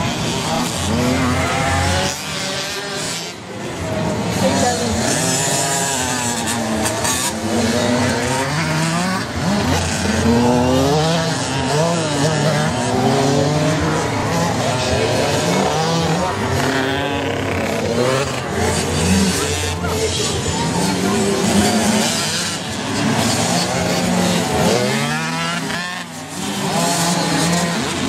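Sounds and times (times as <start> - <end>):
motocross bikes revving: 0.0 - 28.0.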